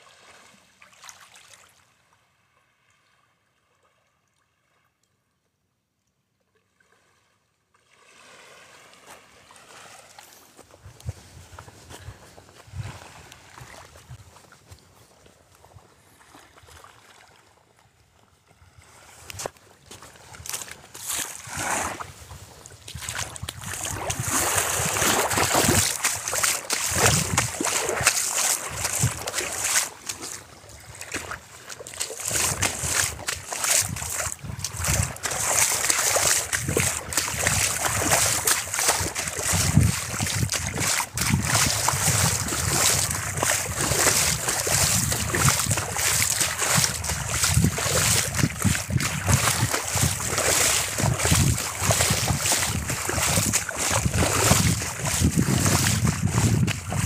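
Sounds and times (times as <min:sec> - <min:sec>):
water lapping at shoreline: 0:00.0 - 0:04.9, 0:06.5 - 0:57.0
wind rumbling on microphone: 0:10.6 - 0:14.5, 0:18.6 - 0:57.0.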